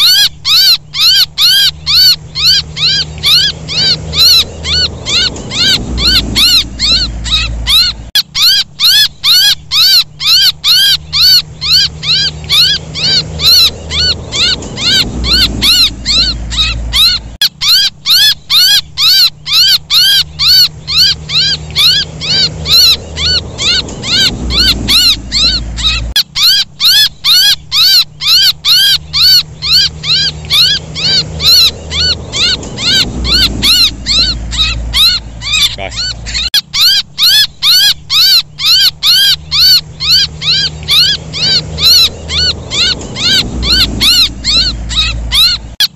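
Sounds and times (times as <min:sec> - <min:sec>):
young bird distress calls: 0:00.0 - 0:45.9
low rumble: 0:01.7 - 0:08.8, 0:09.6 - 0:17.4, 0:19.9 - 0:26.2, 0:28.6 - 0:36.5, 0:39.4 - 0:45.8.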